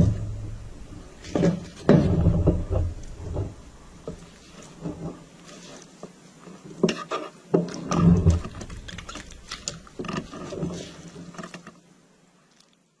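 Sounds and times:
gloved hand squashing jello: 8.2 - 10.9
paper crinkling: 8.2 - 11.7.

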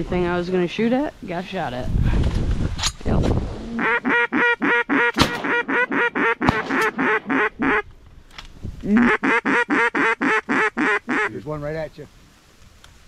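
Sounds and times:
duck call quacks: 3.8 - 7.8, 8.9 - 11.4
sharp cracks: 5.1 - 5.6, 6.4 - 7.4.

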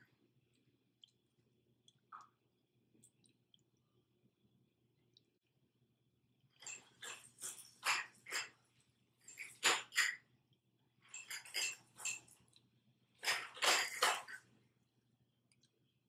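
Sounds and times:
lip smacks and sucking clicks: 0.5 - 1.2.

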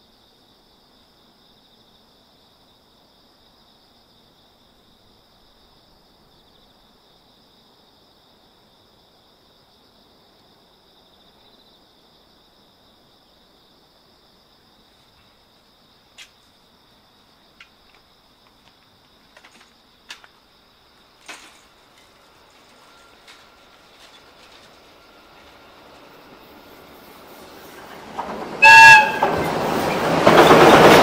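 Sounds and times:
insects chirring: 0.0 - 31.0
freight train rumble: 17.5 - 31.0.

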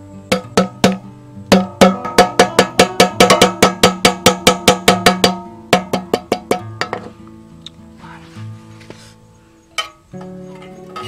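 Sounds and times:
hammer blows on metal tin: 0.3 - 7.1.

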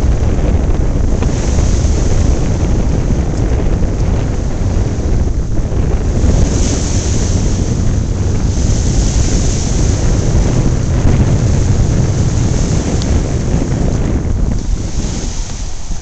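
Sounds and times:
waves washing among rocks: 0.0 - 16.0
wind buffeting microphone: 0.0 - 16.0.

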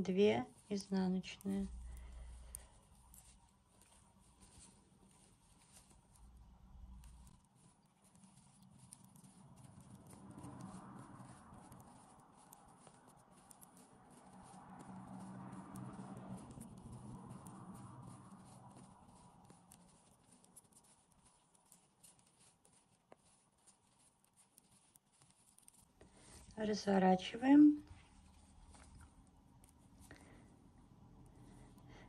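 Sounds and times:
metal knitting needles clicking: 5.7 - 25.9.

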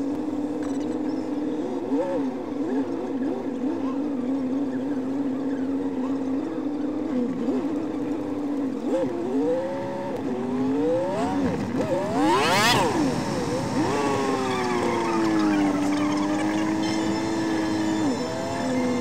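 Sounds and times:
car engine revving inside cabin: 6.7 - 19.0.

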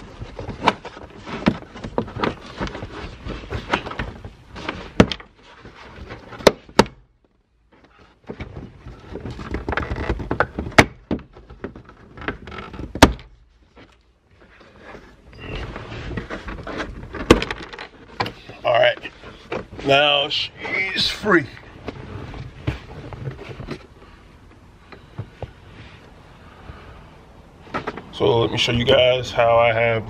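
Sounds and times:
plastic trim knocking and rubbing: 7.7 - 13.9.

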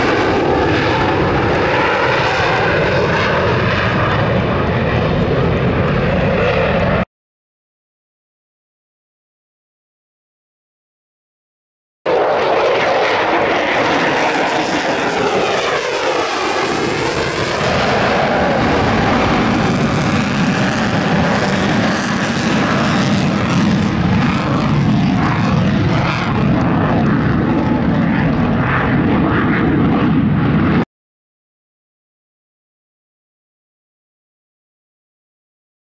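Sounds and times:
jet engine afterburner roar: 0.0 - 7.1, 12.1 - 30.9.

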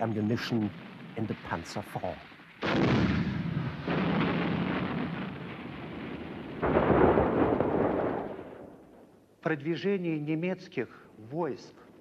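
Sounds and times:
heavy shell explosions: 0.0 - 9.2.

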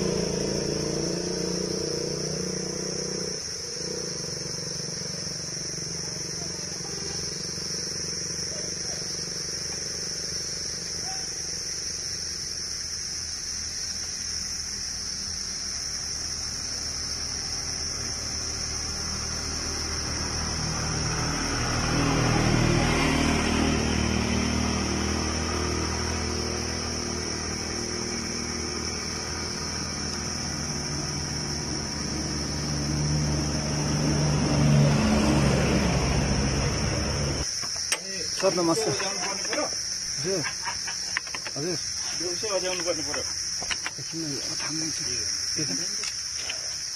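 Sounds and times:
high insect chirring: 0.0 - 46.9
vehicle engine hum: 0.0 - 46.9.

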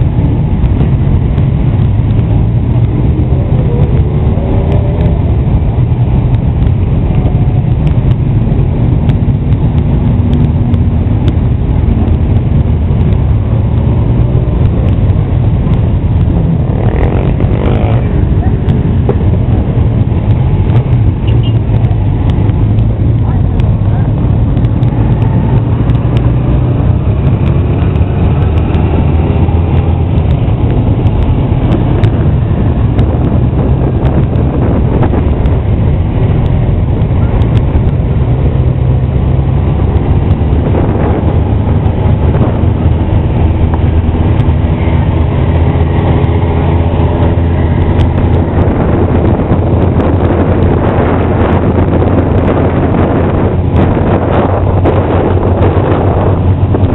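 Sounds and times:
motorcycle engines rumbling: 0.0 - 56.9.

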